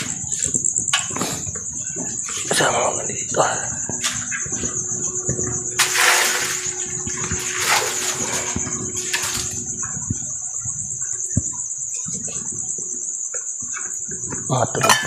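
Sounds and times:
cricket trill: 0:00.0 - 0:15.0
water splashing and pouring: 0:05.8 - 0:09.7.

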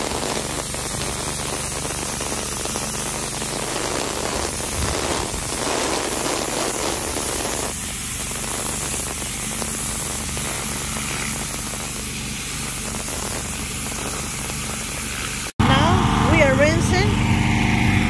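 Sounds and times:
pressure washer spraying concrete: 0:00.0 - 0:18.0
low hum: 0:15.6 - 0:18.0.

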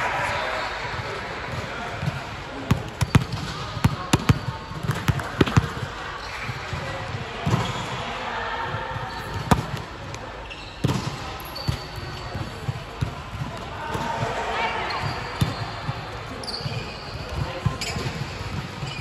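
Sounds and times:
faint voices: 0:00.0 - 0:19.0
ball bouncing on hard floor: 0:02.7 - 0:05.8.

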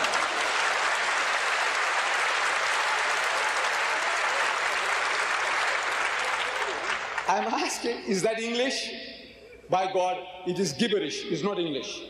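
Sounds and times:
large crowd applauding: 0:00.0 - 0:07.7.

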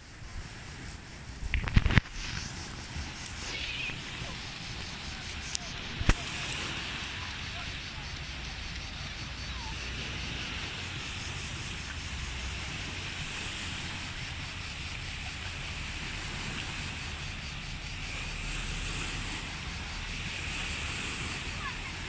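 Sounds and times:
surf washing: 0:00.0 - 0:22.0
wind rumbling on microphone: 0:00.0 - 0:22.0.

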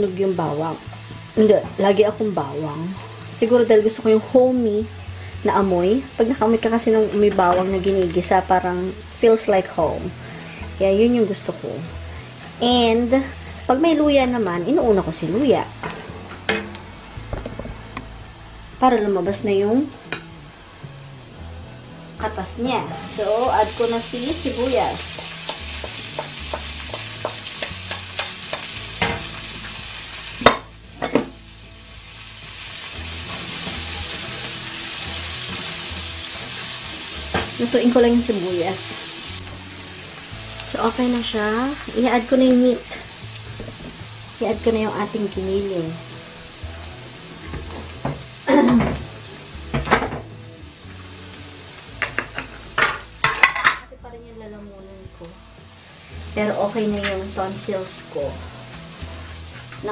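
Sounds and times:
onion sizzling in a frying pan: 0:00.0 - 0:59.9
spatula knocking on pan: 0:25.1 - 0:29.3
cookware clattering and scraping: 0:52.0 - 0:53.9.

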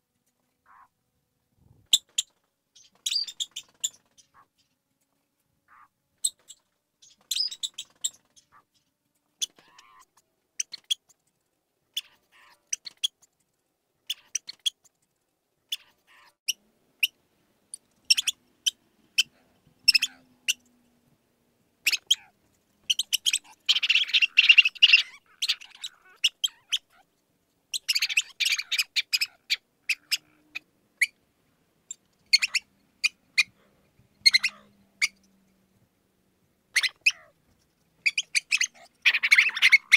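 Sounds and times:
mouse squeaking: 0:01.9 - 0:04.6, 0:05.7 - 0:08.8, 0:09.4 - 0:11.2, 0:11.9 - 0:13.3, 0:14.0 - 0:14.9, 0:15.7 - 0:17.2, 0:18.0 - 0:20.7, 0:21.8 - 0:31.2, 0:31.9 - 0:33.6, 0:34.2 - 0:35.3, 0:36.7 - 0:39.9.

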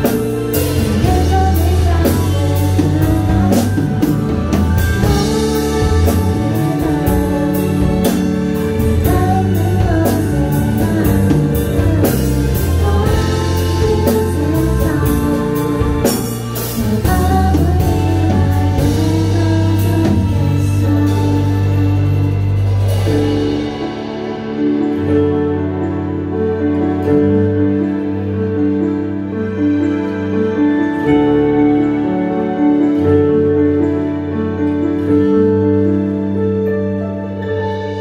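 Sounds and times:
woman singing: 0:00.0 - 0:23.2
keyboard with steady beat: 0:00.0 - 0:38.0.

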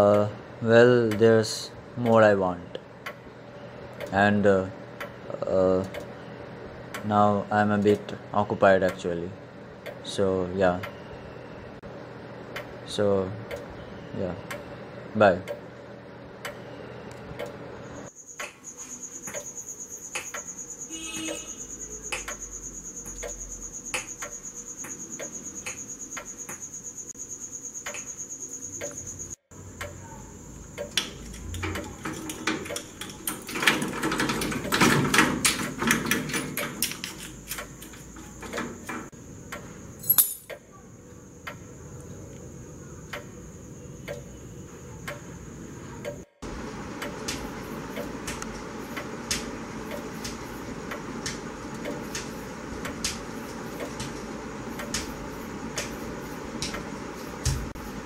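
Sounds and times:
clock-like ticking: 0:22.0 - 0:26.6, 0:29.7 - 0:31.0, 0:43.1 - 0:43.4, 0:44.0 - 0:44.4, 0:45.0 - 0:45.3, 0:46.9 - 0:54.0
padlock and keys rattling on metal door: 0:31.2 - 0:39.1, 0:40.0 - 0:40.5.

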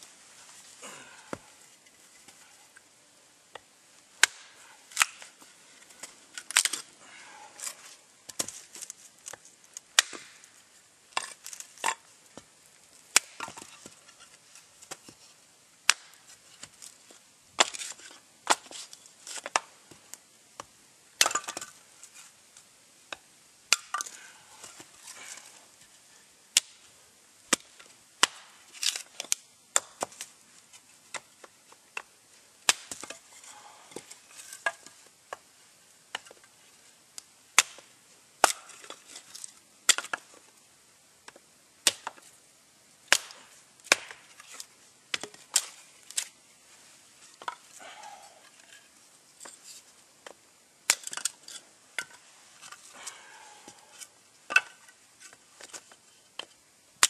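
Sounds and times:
axe chopping wood: 0:04.2 - 0:05.2, 0:10.0 - 0:10.4, 0:15.9 - 0:16.2, 0:27.5 - 0:30.2, 0:32.7 - 0:33.1, 0:37.6 - 0:38.8, 0:41.8 - 0:42.2, 0:43.1 - 0:44.3.

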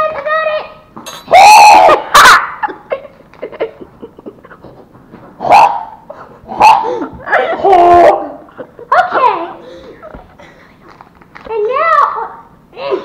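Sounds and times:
short high yelps: 0:01.3 - 0:02.6.

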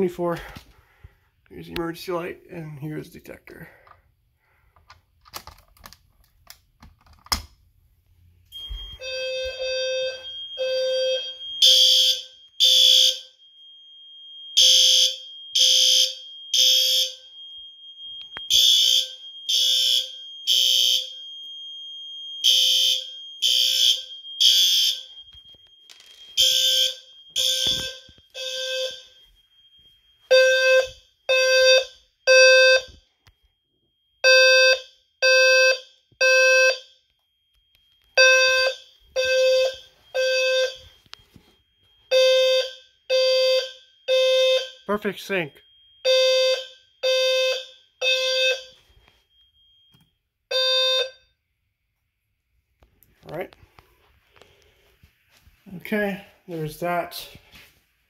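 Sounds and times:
fire alarm horn blasts: 0:08.5 - 0:21.3, 0:22.4 - 0:25.7, 0:26.4 - 0:33.0, 0:34.2 - 0:37.2, 0:37.8 - 0:49.5, 0:50.5 - 0:51.4.

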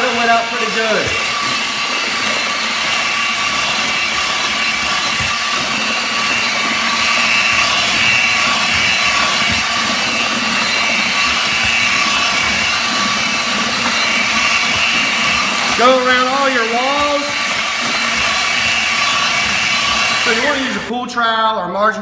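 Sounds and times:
paddle churning thick mix: 0:00.0 - 0:20.9
paddle mixer motor whine: 0:00.0 - 0:20.9.

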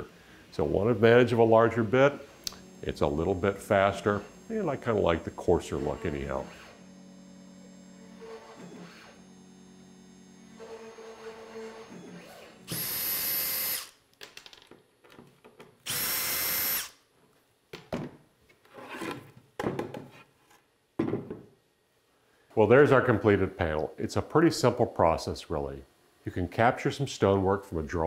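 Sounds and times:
low steady hum: 0:00.0 - 0:08.4
handheld vacuum motor whine: 0:01.5 - 0:13.9, 0:15.9 - 0:17.0.

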